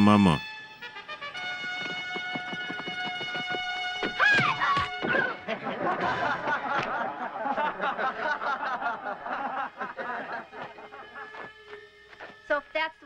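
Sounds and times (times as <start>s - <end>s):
men laughing together: 5.3s - 11.9s.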